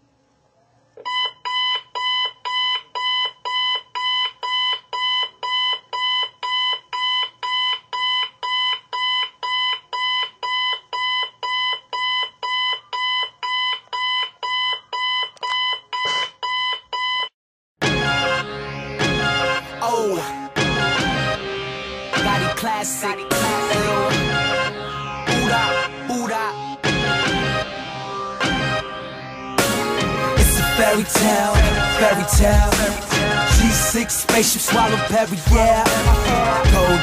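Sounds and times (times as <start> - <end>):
digital alarm clock beeping: 1.0 - 17.3.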